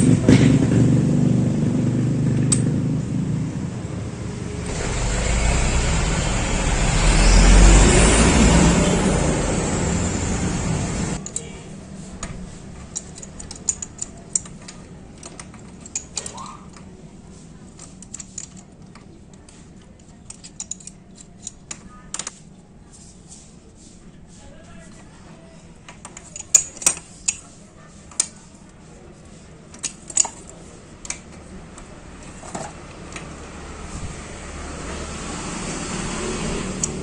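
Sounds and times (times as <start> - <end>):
vehicle engine: 0.0 - 21.9, 29.0 - 37.0
metallic clicks of pipe fittings: 11.2 - 11.5, 12.2 - 16.9, 17.7 - 22.4, 25.9 - 27.5, 29.7 - 31.9.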